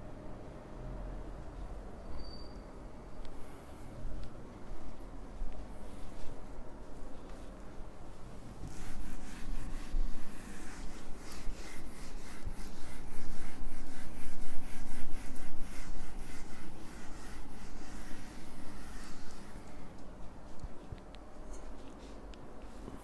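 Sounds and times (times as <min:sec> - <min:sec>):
eraser rubbing on whiteboard: 0:08.6 - 0:20.0.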